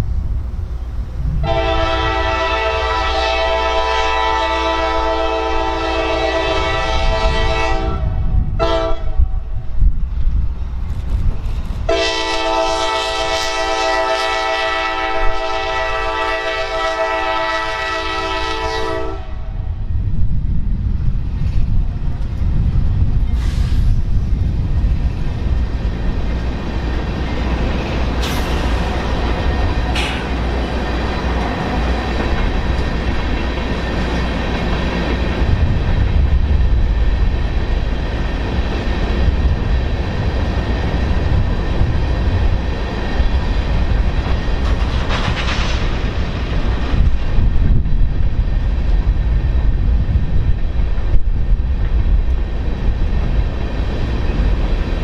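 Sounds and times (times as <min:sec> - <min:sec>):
freight train rumbling: 0:00.0 - 0:55.0
locomotive air horn blasts: 0:01.4 - 0:09.3, 0:11.9 - 0:19.6.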